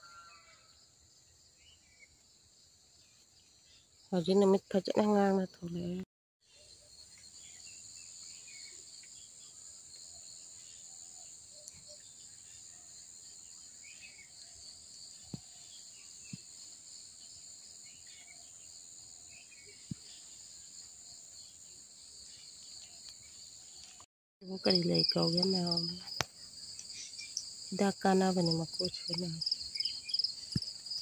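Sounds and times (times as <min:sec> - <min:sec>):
high-pitched insect chorus: 0:06.4 - 0:31.0.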